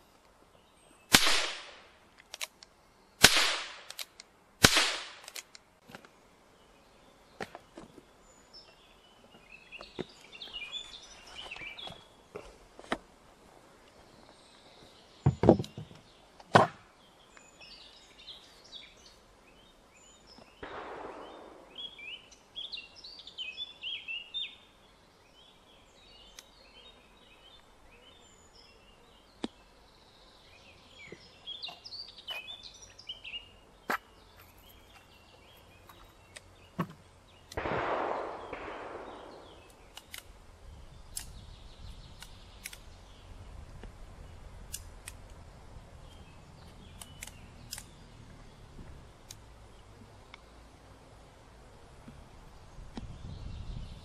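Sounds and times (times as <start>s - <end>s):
revolver gunshot: 1.1s - 1.8s, 3.2s - 3.9s, 4.6s - 5.3s, 20.6s - 22.2s, 37.6s - 39.7s
sharp clicks: 2.2s - 5.7s, 37.4s - 40.3s, 41.1s - 41.4s, 42.1s - 42.9s, 44.7s - 45.4s, 46.6s - 48.0s
birds chirping: 5.8s - 54.0s.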